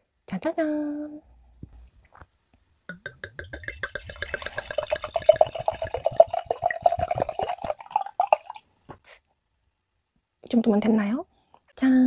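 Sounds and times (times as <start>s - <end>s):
wine glugging into glass: 2.9s - 8.6s.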